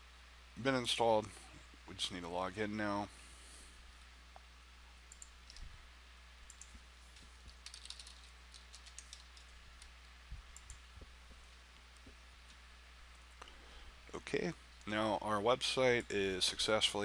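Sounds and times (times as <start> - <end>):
low steady hum: 0.0 - 17.0
typing on computer keyboard: 7.5 - 9.5.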